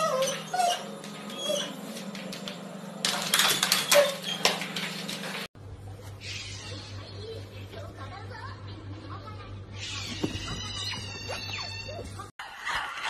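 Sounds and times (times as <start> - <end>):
squeaky animal cries: 6.2 - 7.0, 9.8 - 12.2.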